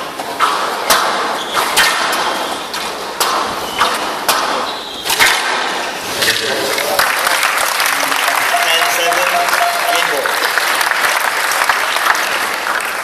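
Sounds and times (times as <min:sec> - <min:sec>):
squash ball hits: 0:00.0 - 0:05.9.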